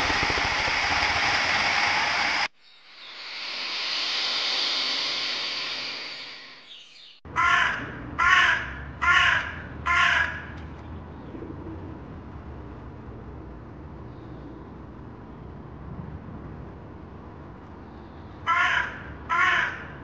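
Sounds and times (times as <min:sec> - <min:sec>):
hiss of noise: 0:00.0 - 0:07.2
crow cawing: 0:07.3 - 0:10.6, 0:18.4 - 0:20.0.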